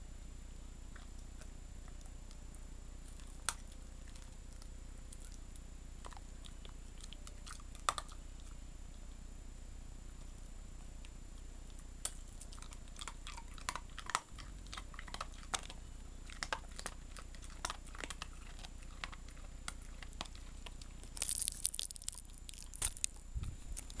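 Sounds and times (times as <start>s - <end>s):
dog crunching hard candy: 3.0s - 8.6s, 11.7s - 24.0s.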